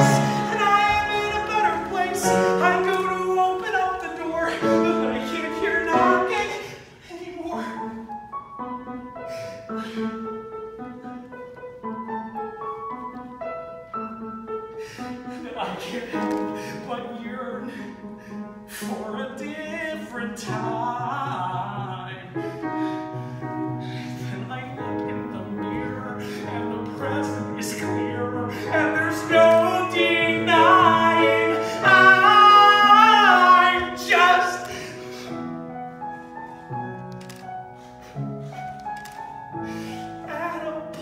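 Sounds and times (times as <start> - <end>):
musical accompaniment: 0.0 - 7.0, 7.7 - 41.0
man singing a ballad: 0.0 - 8.0, 15.4 - 22.6, 24.2 - 35.0, 40.2 - 41.0.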